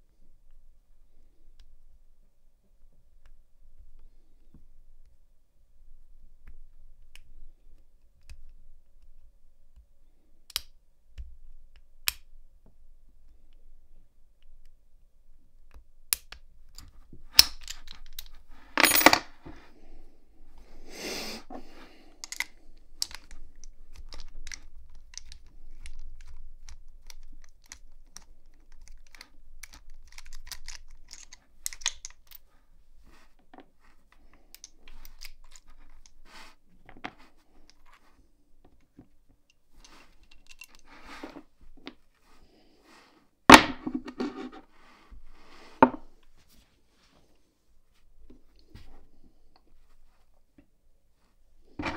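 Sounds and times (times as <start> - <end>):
padlock clicks and clinks: 29.6 - 32.4.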